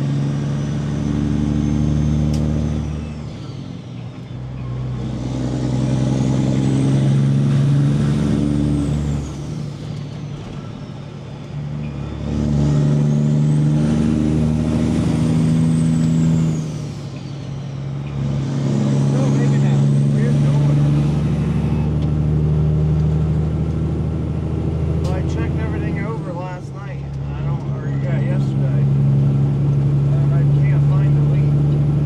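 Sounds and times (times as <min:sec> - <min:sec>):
diesel truck engine pulling hard: 0:00.0 - 0:32.0.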